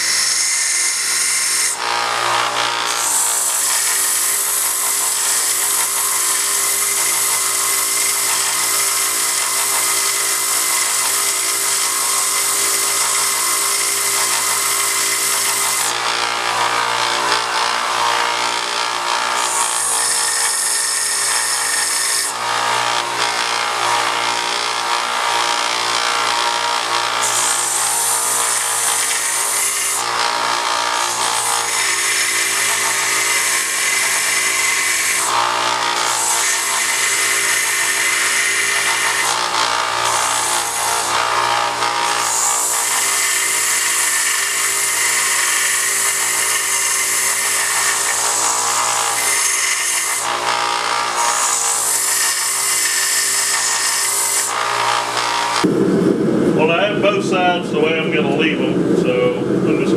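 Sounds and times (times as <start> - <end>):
belt grinder motor hum: 0.0 - 55.8.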